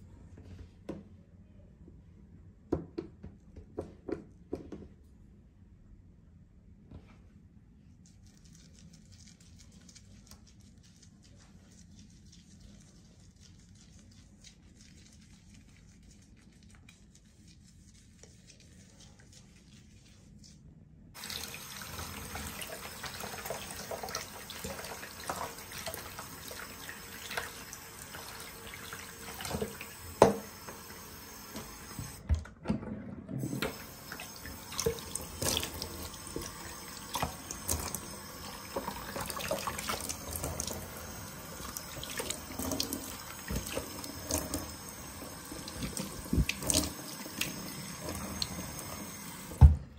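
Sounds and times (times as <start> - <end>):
water running into sink: 21.2 - 32.3, 33.4 - 49.9
tap turning on: 29.5 - 32.3, 49.4 - 49.8.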